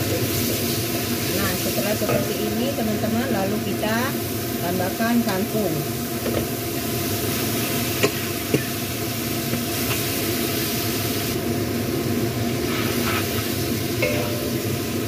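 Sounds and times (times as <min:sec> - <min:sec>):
greens sizzling in wok: 0:00.0 - 0:15.0
metal spatula knocking wok: 0:14.0 - 0:14.6.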